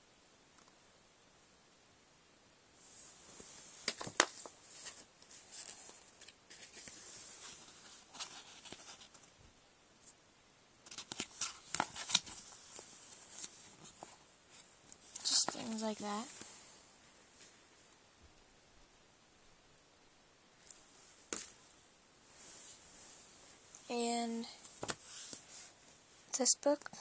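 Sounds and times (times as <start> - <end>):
sticker pages rustling: 3.8 - 9.3, 10.8 - 16.5, 24.6 - 25.7.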